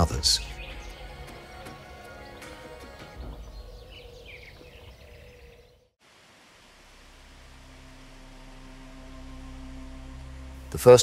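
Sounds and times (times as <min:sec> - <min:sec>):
bird chirps: 0:00.0 - 0:01.3, 0:02.1 - 0:06.0
low steady hum: 0:06.5 - 0:11.0.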